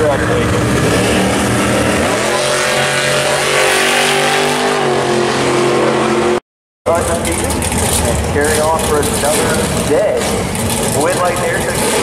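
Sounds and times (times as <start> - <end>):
truck engine at full throttle: 0.0 - 12.0.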